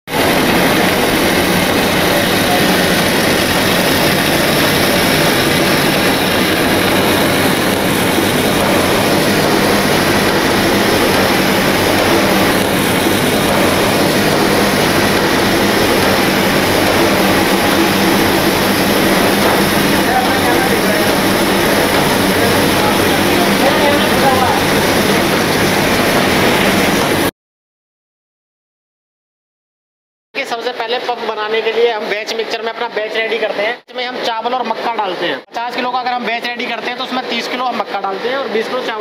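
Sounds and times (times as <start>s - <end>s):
machinery whirring: 0.1s - 27.3s.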